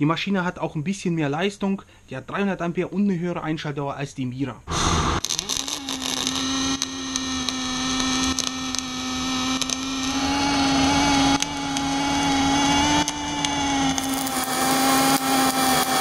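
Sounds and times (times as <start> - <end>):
welding arc crackles: 4.7 - 16.0
welding arc humming: 4.7 - 16.0.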